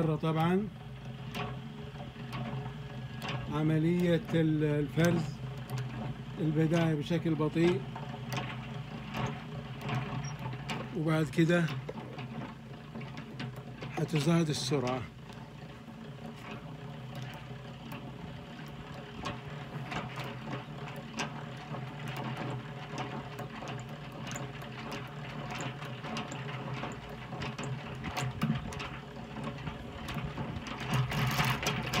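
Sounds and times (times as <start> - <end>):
honey extractor whirring: 0.0 - 32.0.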